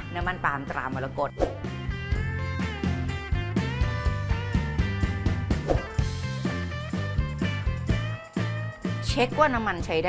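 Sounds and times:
music with steady beat and guitar: 1.6s - 9.8s.

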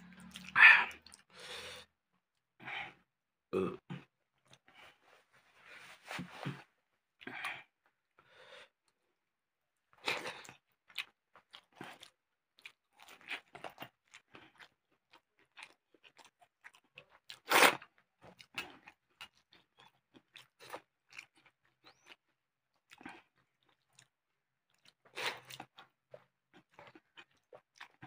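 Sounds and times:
chewing and mouth sounds: 0.0s - 1.4s, 10.0s - 28.0s.

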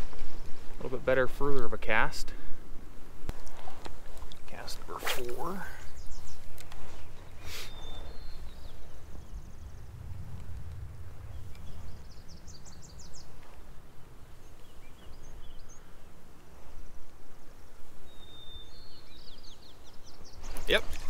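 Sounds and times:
faint bird chirps: 4.6s - 10.2s, 11.2s - 13.6s, 14.2s - 16.9s, 18.0s - 21.0s
wind noise on microphone: 5.1s - 21.0s.

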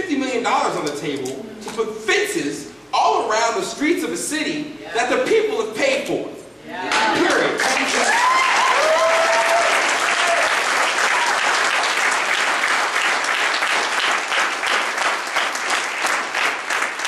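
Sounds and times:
audience applauding: 6.9s - 17.0s.

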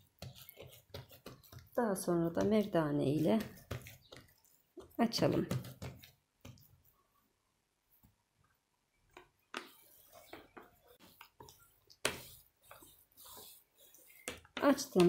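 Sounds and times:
rolling pin rolling dough: 0.0s - 6.9s, 9.1s - 15.0s.

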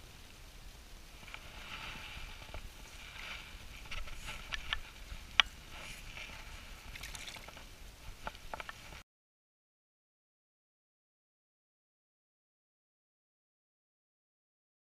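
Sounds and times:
wind rumble on microphone: 0.0s - 9.0s.

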